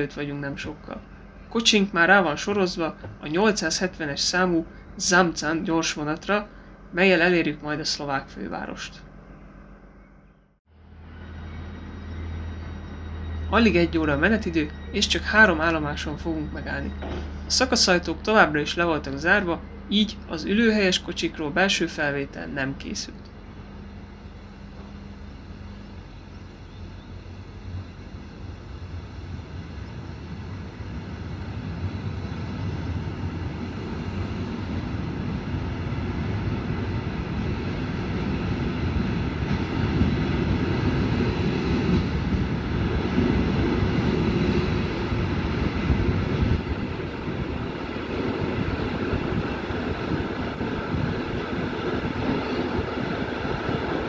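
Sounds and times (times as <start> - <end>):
train wheels rumbling on rails: 10.9 - 54.0.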